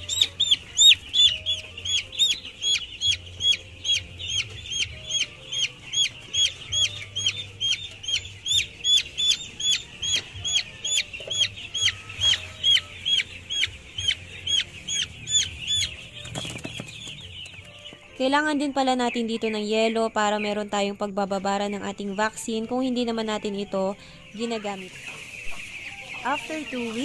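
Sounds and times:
chicks peeping: 0:00.0 - 0:27.0.

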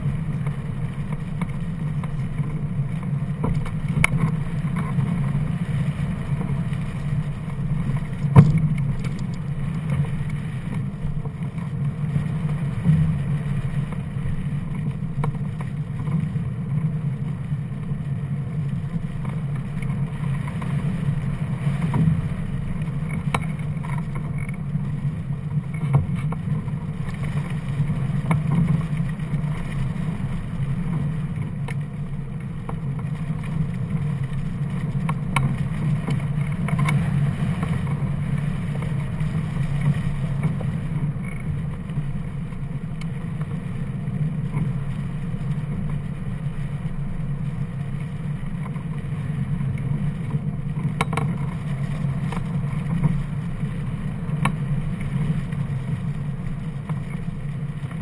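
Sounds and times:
faint ticks: 0:00.1 - 0:58.0
wind buffeting camera: 0:06.2 - 0:13.1.

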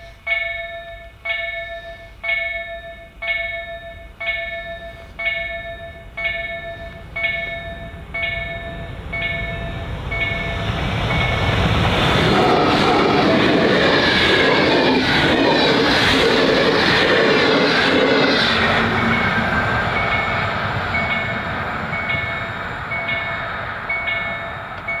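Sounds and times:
repeating ringing tone: 0:00.3 - 0:11.5
rush of wheels on rail: 0:04.7 - 0:25.0
diesel locomotive rumble: 0:06.2 - 0:25.0.

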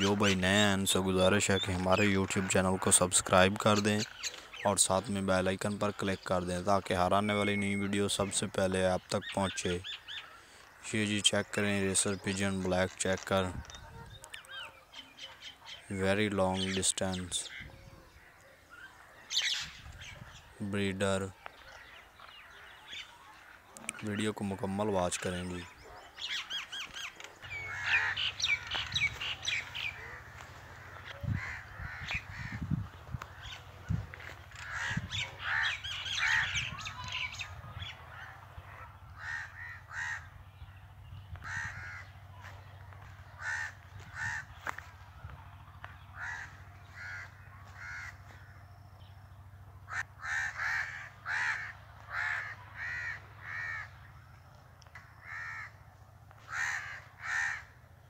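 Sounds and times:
birds calling: 0:00.0 - 0:58.0
steady low hum: 0:25.6 - 0:58.0.

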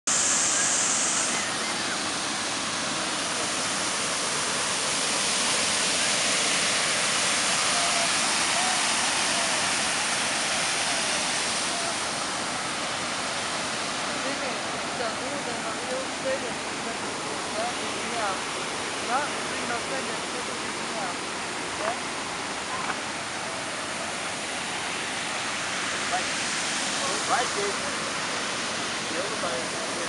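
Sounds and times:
high hiss: 0:00.1 - 0:16.5
waterfall rushing: 0:00.1 - 0:30.0.

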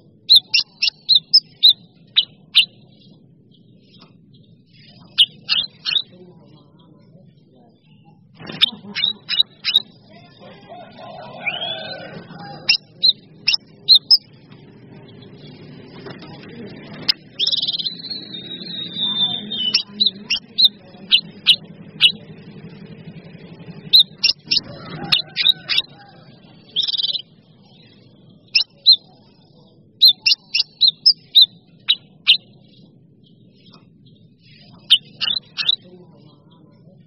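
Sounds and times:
songbirds chirping: 0:00.0 - 0:37.0
trilled bird whistle: 0:00.3 - 0:02.8, 0:05.1 - 0:06.1, 0:08.6 - 0:09.9, 0:12.6 - 0:14.3, 0:17.4 - 0:22.2, 0:23.9 - 0:27.3, 0:30.0 - 0:32.4
low rumble: 0:10.9 - 0:28.5.

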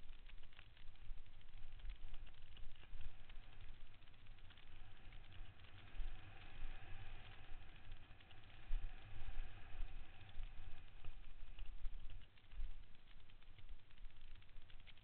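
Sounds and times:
faint steady whine: 0:00.0 - 0:15.0.

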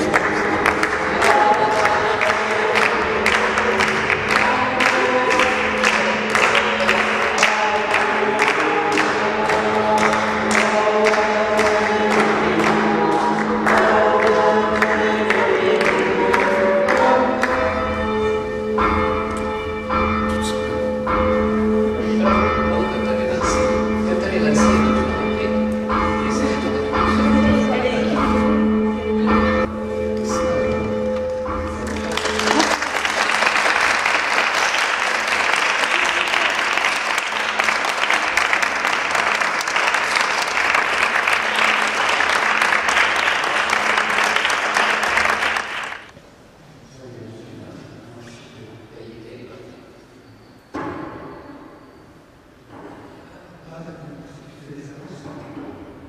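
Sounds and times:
small group clapping: 0:00.0 - 0:17.7, 0:31.1 - 0:46.2
church bells ringing: 0:00.0 - 0:46.2
steady bell hum: 0:16.0 - 0:34.4.

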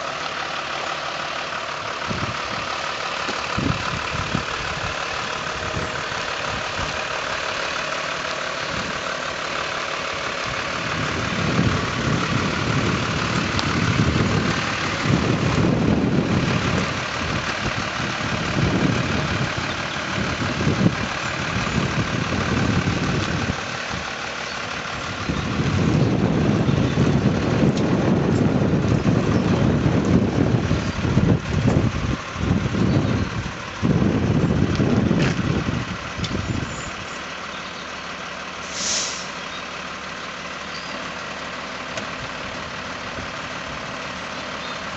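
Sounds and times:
diesel lorry engine at low revs: 0:00.0 - 0:44.9
wind rumbling on microphone: 0:01.9 - 0:07.4, 0:08.6 - 0:09.1, 0:10.1 - 0:37.0.

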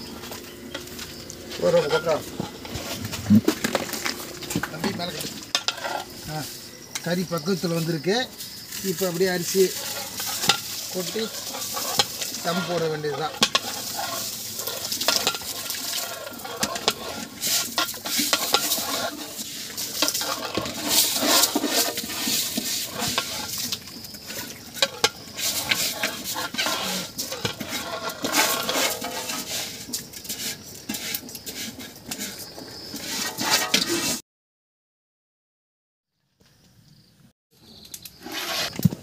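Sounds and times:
ladle knocking and scraping pot: 0:00.0 - 0:34.2
rice poured into a pot: 0:07.8 - 0:31.6.

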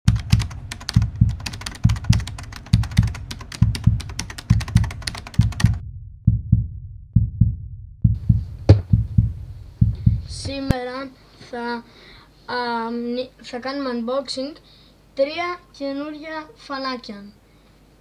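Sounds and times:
deep double thumps: 0:00.1 - 0:10.8.

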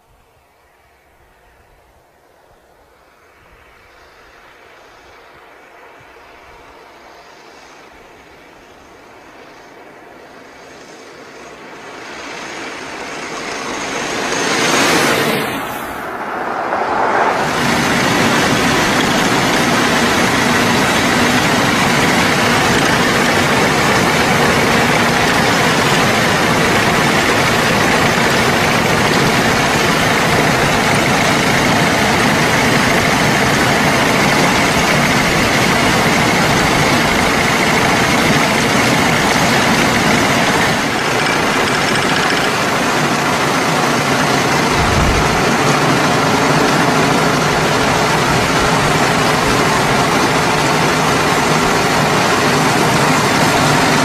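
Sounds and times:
steam car driving: 0:05.7 - 0:54.0.

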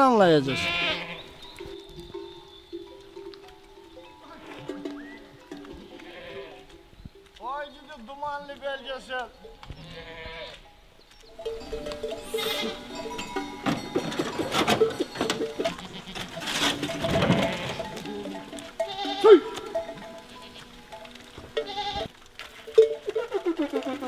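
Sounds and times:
goats bleating: 0:00.2 - 0:06.8, 0:09.2 - 0:10.7, 0:11.6 - 0:24.0
background music with held notes: 0:01.3 - 0:07.4.

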